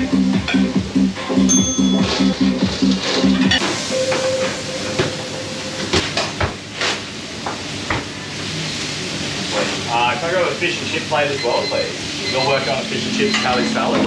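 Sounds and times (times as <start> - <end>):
pans and utensils clanking: 0.4 - 0.8, 1.5 - 5.2, 12.3 - 14.0
steady sizzling hiss: 2.5 - 14.0.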